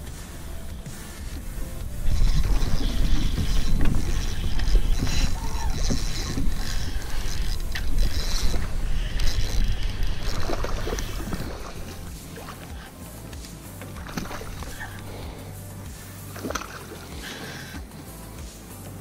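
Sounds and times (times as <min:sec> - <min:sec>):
low rumble: 0:00.0 - 0:16.4
fishing reel drag buzzing: 0:00.0 - 0:18.8.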